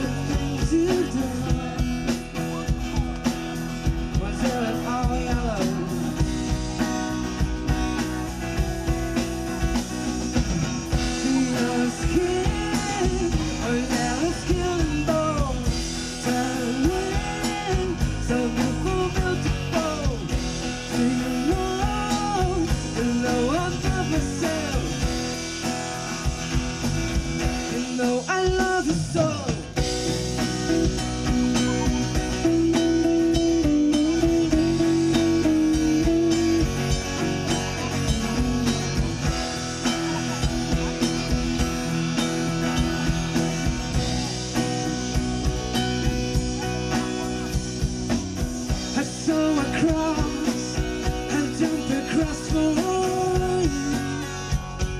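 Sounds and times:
person singing: 0:00.0 - 0:03.3, 0:03.9 - 0:06.9, 0:10.6 - 0:25.4, 0:30.8 - 0:47.6, 0:48.8 - 0:54.6
acoustic guitar: 0:00.0 - 0:54.9
bass guitar: 0:00.0 - 0:54.9
drum kit: 0:00.0 - 0:54.9
electric guitar: 0:00.0 - 0:54.9.

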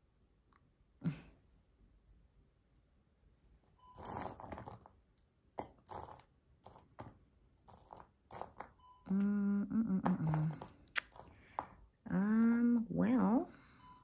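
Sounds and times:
metal jewelry clinking: 0:03.8 - 0:09.2, 0:10.0 - 0:12.8
person humming low note: 0:09.1 - 0:10.4.

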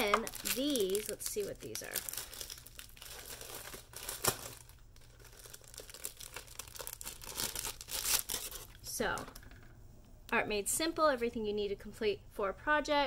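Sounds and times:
packaging crinkling and rustling: 0:00.0 - 0:09.4.

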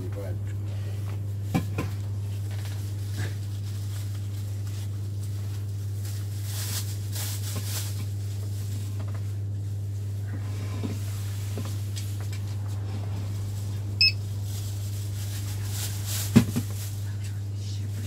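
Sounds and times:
soft rustling: 0:02.3 - 0:17.4
low hum: 0:08.2 - 0:18.0.

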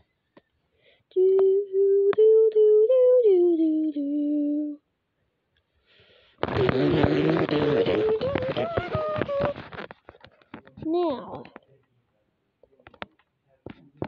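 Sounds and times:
person humming: 0:01.1 - 0:04.8, 0:06.4 - 0:09.9.

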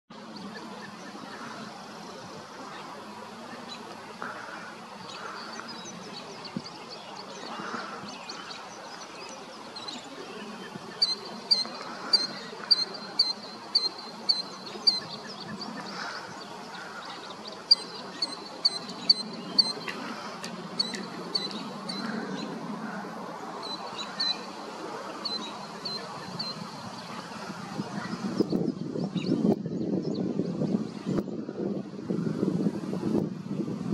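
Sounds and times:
faint background hiss: 0:00.2 - 0:28.4.

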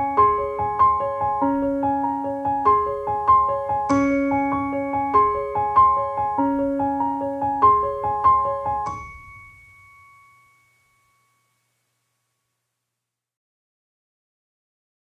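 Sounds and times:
piano playing broken chords: 0:00.0 - 0:10.6.

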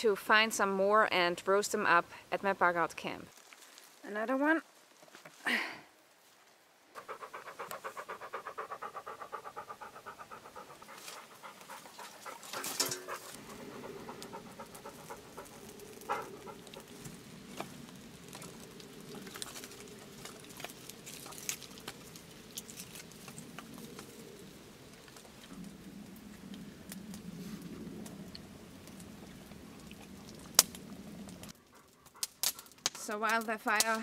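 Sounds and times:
fire crackling and popping: 0:03.3 - 0:04.0, 0:06.5 - 0:34.0
dog panting: 0:07.0 - 0:17.2, 0:31.6 - 0:32.8.

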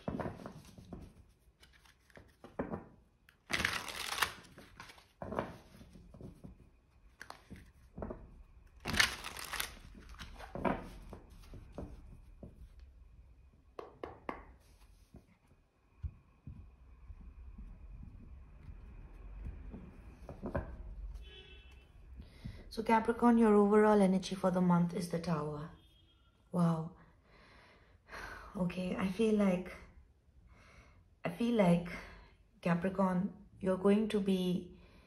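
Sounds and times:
cards riffling: 0:03.4 - 0:05.2, 0:08.8 - 0:10.5.

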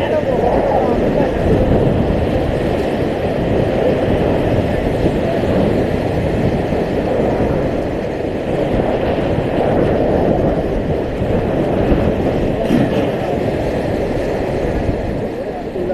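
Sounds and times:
whitewater rapids rushing: 0:00.0 - 0:15.9.

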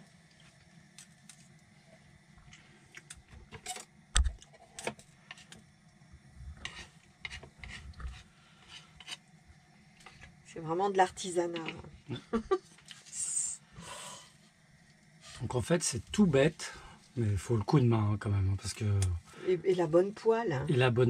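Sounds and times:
utensils tapping and scraping pan: 0:06.6 - 0:09.2, 0:11.1 - 0:11.9.

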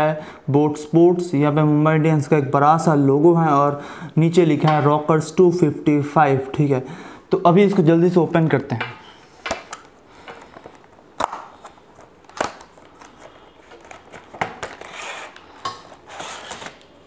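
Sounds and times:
cardboard packaging rustling: 0:10.4 - 0:17.0.

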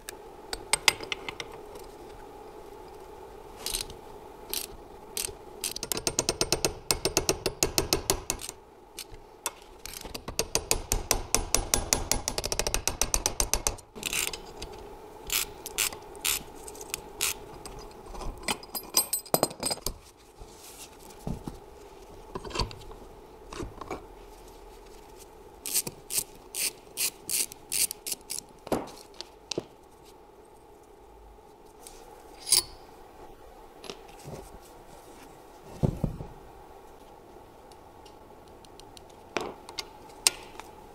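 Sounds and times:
metal parts knocking and clinking: 0:17.6 - 0:20.0
ratchet wrench clicking: 0:25.7 - 0:28.4.

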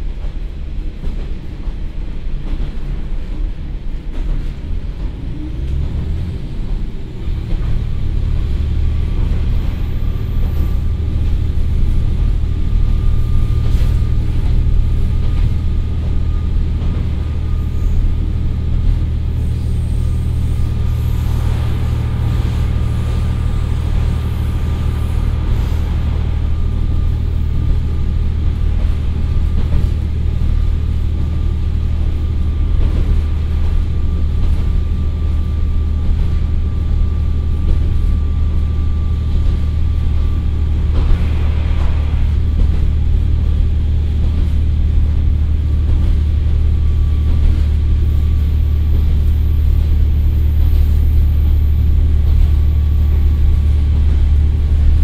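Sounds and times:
train diesel engine drone: 0:00.0 - 0:55.0
thin high whine: 0:39.8 - 0:44.3.

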